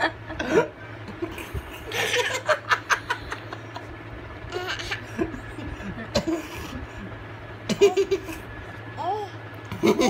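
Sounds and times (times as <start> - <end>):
breathy laughter: 0.0 - 4.0, 5.0 - 7.2.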